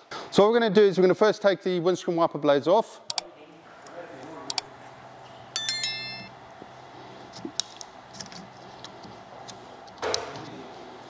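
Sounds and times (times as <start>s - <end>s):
bright notification chime: 5.6s - 6.3s.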